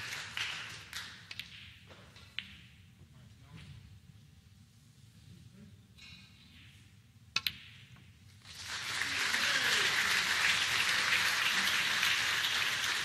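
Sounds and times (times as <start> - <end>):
audience applause: 0.0 - 0.8, 8.4 - 13.0
snooker balls clicking: 1.2 - 2.8.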